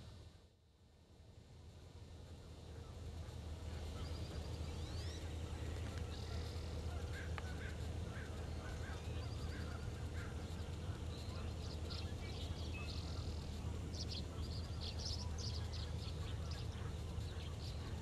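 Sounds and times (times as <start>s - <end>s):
bird chirps and buzzy trills: 0.0s - 18.0s
birds calling: 2.7s - 18.0s.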